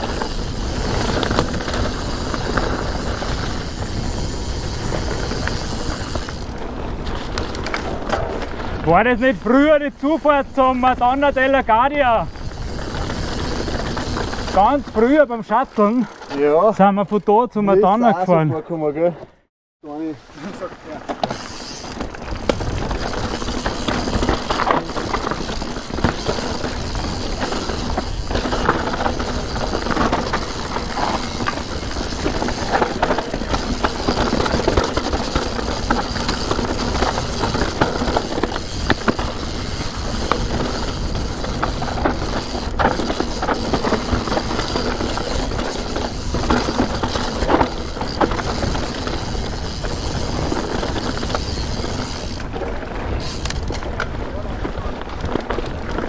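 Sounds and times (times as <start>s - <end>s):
bike chain and frame rattles: 0.0s - 18.0s, 19.9s - 56.0s
bike tyres on dirt trail: 0.0s - 56.0s.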